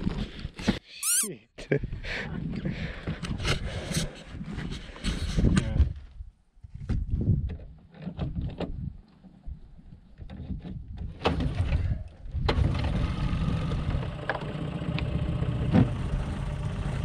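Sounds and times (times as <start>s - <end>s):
outboard motor running: 12.6s - 17.0s.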